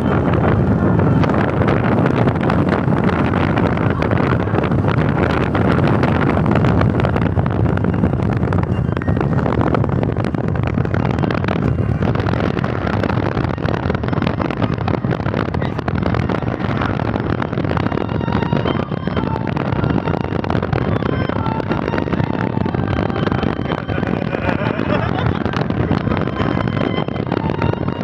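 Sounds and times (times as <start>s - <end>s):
wind buffeting microphone: 0.0s - 28.0s
wind rush and road noise: 0.0s - 28.0s.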